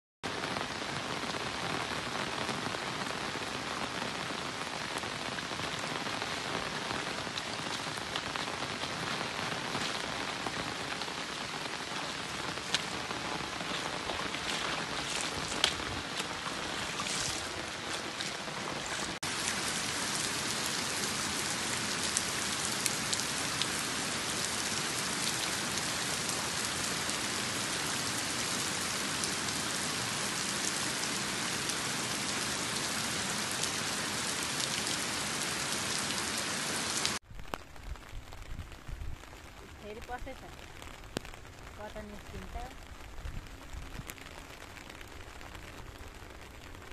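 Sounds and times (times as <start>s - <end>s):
heavy rain hissing: 0.3s - 37.2s
rain drop ticks: 5.4s - 27.4s, 37.0s - 46.9s.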